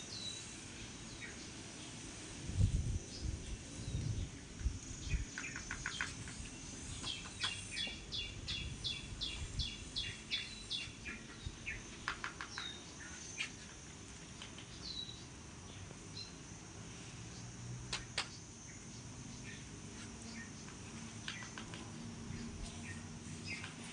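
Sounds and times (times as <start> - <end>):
bird chirping: 3.1 - 13.6, 14.4 - 16.4, 18.2 - 23.9.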